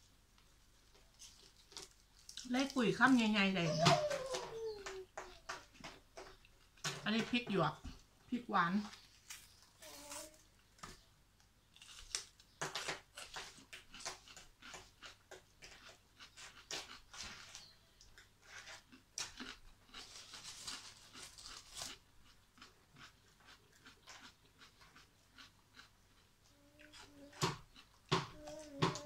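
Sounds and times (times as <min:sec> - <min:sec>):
crunchy chewing of pepper: 0:11.7 - 0:28.6.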